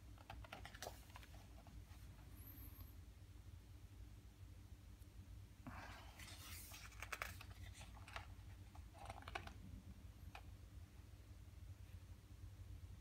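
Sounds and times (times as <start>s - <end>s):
paper pages rustling: 5.8s - 9.6s.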